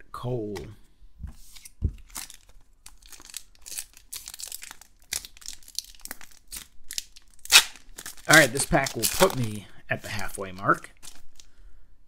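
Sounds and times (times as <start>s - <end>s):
foil wrapper crinkling and tearing: 2.0s - 9.6s, 10.6s - 11.5s.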